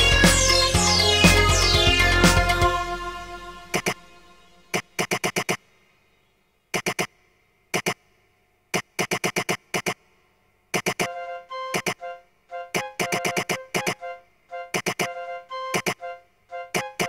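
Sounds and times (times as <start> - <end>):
steady synth tone: 0.0 - 4.7
synth chord: 0.0 - 4.7
rapid sharp electronic clicks: 4.7 - 5.6, 6.7 - 8.1, 8.7 - 10.1, 10.7 - 12.0, 12.7 - 14.0, 14.7 - 16.0.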